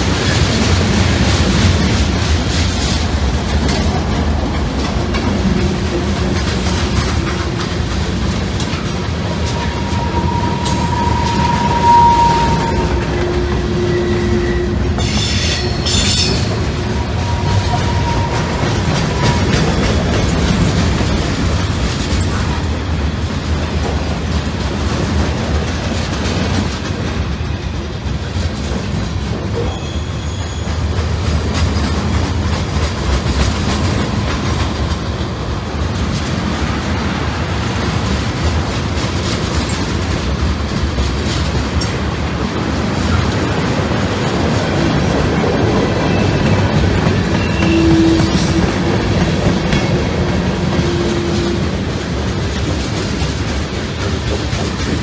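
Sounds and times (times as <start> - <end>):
wheels clicking over rail joints: 0.0 - 11.8, 14.8 - 55.0
train wheels rumbling on rail: 0.0 - 55.0
wheel squeal: 9.4 - 20.0, 29.6 - 30.8, 47.4 - 48.6.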